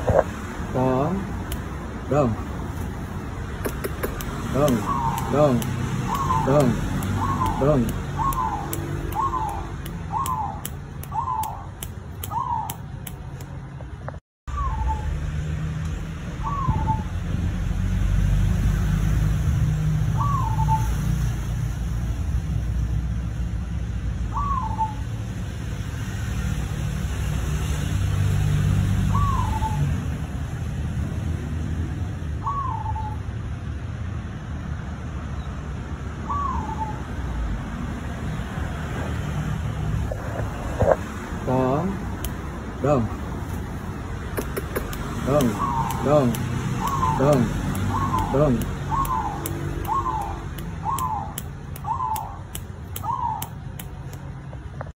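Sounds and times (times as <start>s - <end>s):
dove calling: 0.0s - 13.0s, 16.4s - 17.2s, 20.1s - 20.9s, 24.3s - 25.1s, 29.1s - 29.9s, 44.2s - 53.8s.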